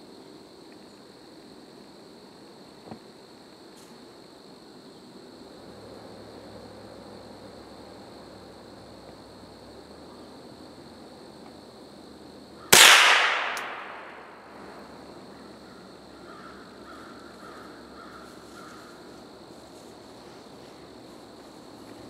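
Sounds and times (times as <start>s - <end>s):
loud gunshot: 12.7s - 14.3s.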